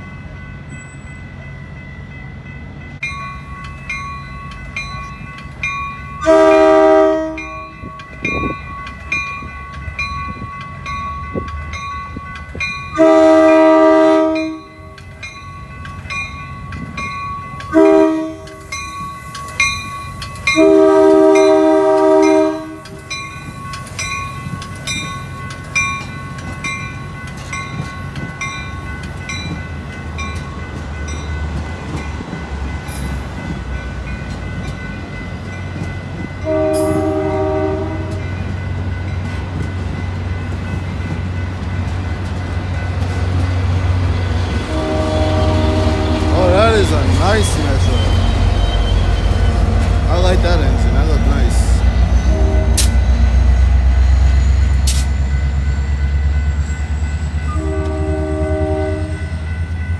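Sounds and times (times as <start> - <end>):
railroad crossing bell ringing: 0.0 - 59.9
train cars rumbling past: 0.0 - 59.9
train horn blasts: 6.2 - 7.9, 12.9 - 15.0, 17.7 - 18.6, 20.5 - 23.0, 36.4 - 38.3, 44.6 - 49.8, 51.5 - 53.2, 57.4 - 59.4.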